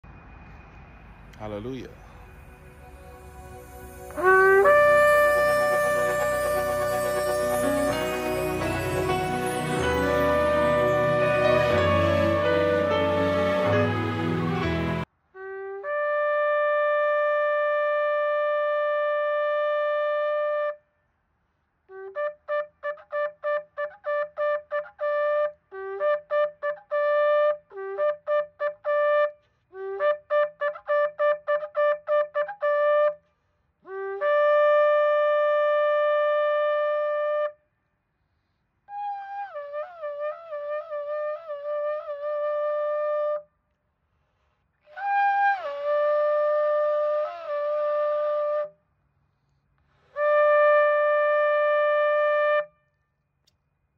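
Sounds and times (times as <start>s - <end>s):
shofar horn blasts: 2.0s - 20.8s.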